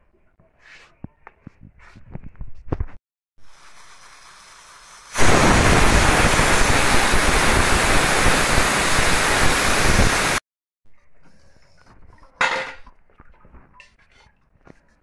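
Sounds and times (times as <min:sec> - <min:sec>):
pressure cooker hissing steam: 0:03.4 - 0:10.4.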